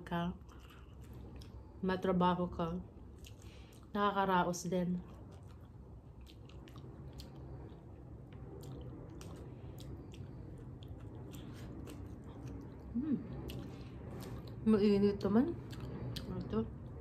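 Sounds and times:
low steady hum: 0.0s - 17.0s
person chewing: 0.4s - 1.7s, 3.0s - 3.9s, 5.0s - 14.6s.

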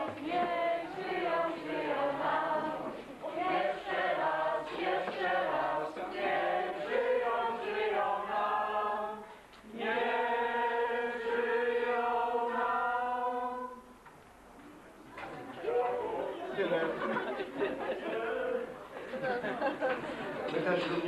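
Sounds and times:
group singing unaccompanied: 0.0s - 14.0s, 15.6s - 19.8s.

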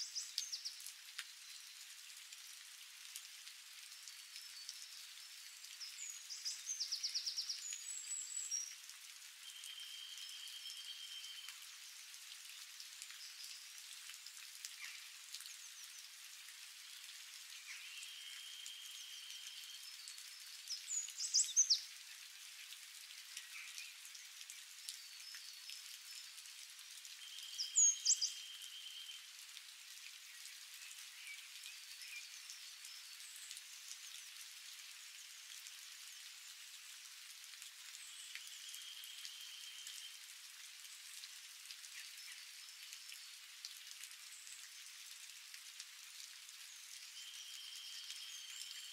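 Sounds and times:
light rain on leaves: 0.0s - 48.9s.

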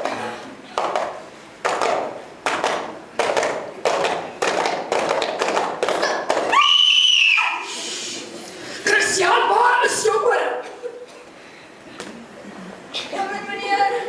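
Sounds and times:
hand-made percussive beats: 0.8s - 6.6s.

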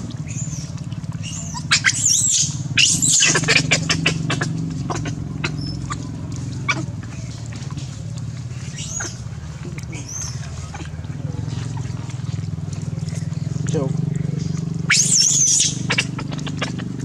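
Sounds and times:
smacking clicks from eating: 0.0s - 17.0s
steady low hum: 0.0s - 17.0s
monkeys squealing: 1.2s - 6.9s, 8.7s - 9.2s, 9.9s - 10.9s, 14.8s - 17.0s.

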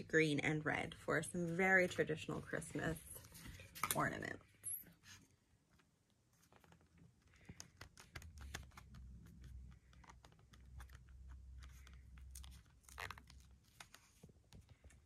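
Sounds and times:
faint clicks and crinkles: 5.7s - 15.0s.

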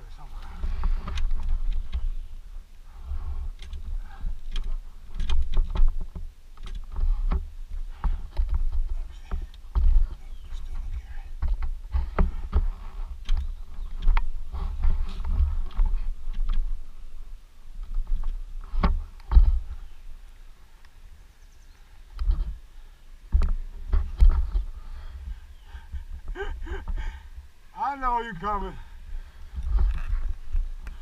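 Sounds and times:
wind rumbling on microphone: 0.0s - 31.0s
handling knocks and clicks: 3.5s - 16.8s, 23.3s - 24.7s.

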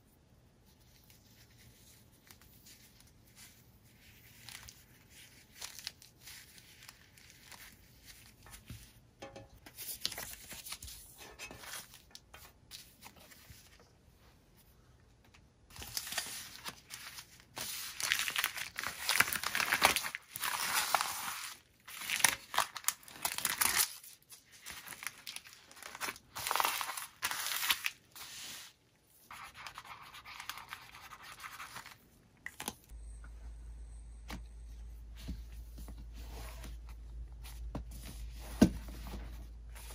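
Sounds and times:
packaging tearing and crinkling: 17.9s - 24.0s, 24.7s - 28.0s.

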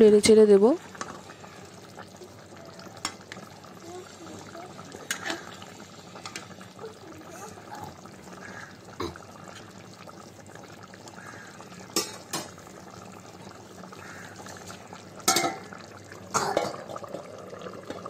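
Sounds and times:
curry bubbling in a pan: 0.0s - 18.0s
metal lid clanging on pan: 12.0s - 12.5s, 15.2s - 15.7s
lid clattering: 12.0s - 12.6s, 15.2s - 15.7s.

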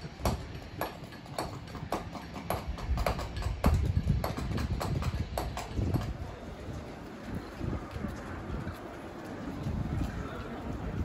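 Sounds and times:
mallet knocking on chisel: 0.2s - 6.1s.

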